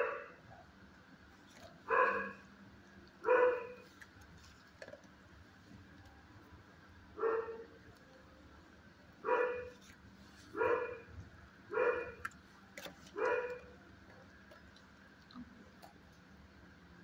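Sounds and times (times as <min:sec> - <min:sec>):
dog barking: 0:00.0 - 0:00.7, 0:01.9 - 0:02.4, 0:03.2 - 0:03.9, 0:07.2 - 0:07.7, 0:09.2 - 0:09.9, 0:10.5 - 0:12.3, 0:13.1 - 0:13.7.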